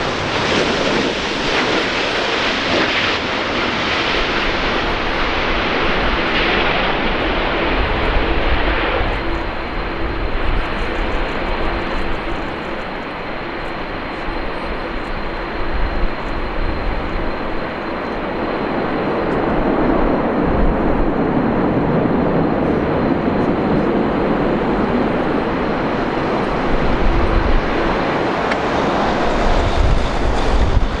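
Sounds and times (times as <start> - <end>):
jet engines rumbling with whine: 0.0 - 31.0
wind buffeting microphone: 0.0 - 31.0.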